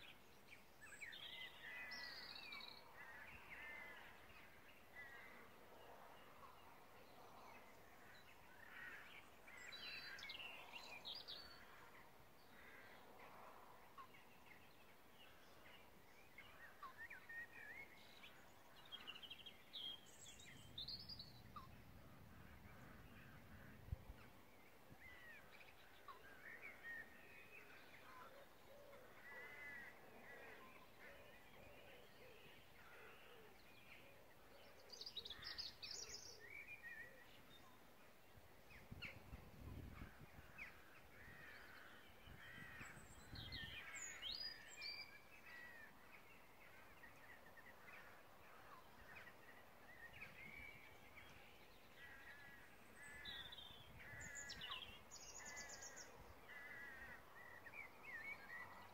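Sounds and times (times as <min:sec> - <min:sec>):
birds singing: 0:14.0 - 0:58.9.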